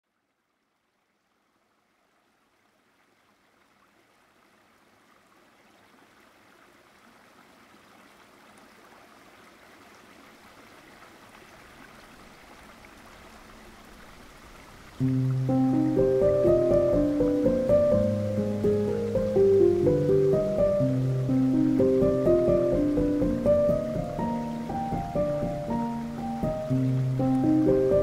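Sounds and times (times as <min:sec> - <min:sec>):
stream water rushing: 0:01.2 - 0:28.0.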